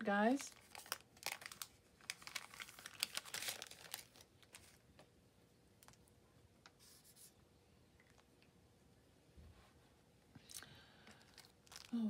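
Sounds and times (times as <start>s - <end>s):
plastic packaging crinkling: 0.1s - 4.9s, 10.5s - 12.0s.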